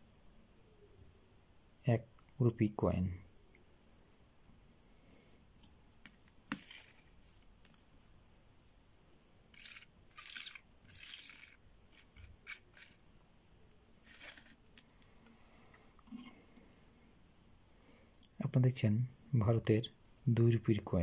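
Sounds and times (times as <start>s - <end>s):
coins sliding across table: 6.5s - 7.4s, 9.5s - 13.0s, 14.0s - 14.9s.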